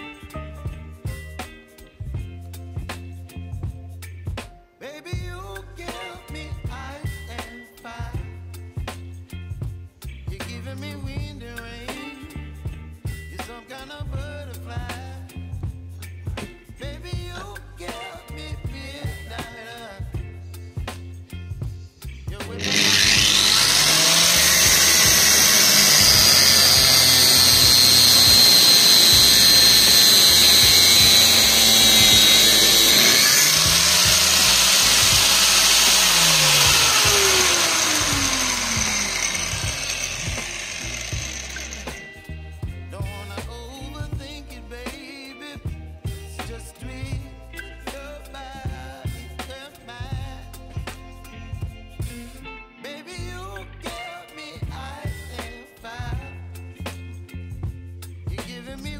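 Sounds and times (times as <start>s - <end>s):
bass line: 0.0s - 4.4s, 5.2s - 7.4s, 8.0s - 19.4s, 20.1s - 45.0s, 45.6s - 52.6s, 53.2s - 54.0s
angle grinder whining: 22.5s - 42.2s.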